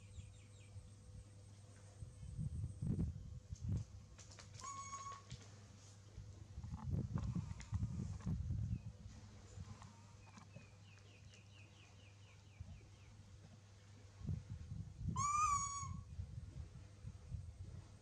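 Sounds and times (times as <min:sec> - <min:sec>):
low scuffling rumble: 0:01.7 - 0:11.6
loud clear animal call: 0:04.6 - 0:05.3, 0:15.1 - 0:16.1.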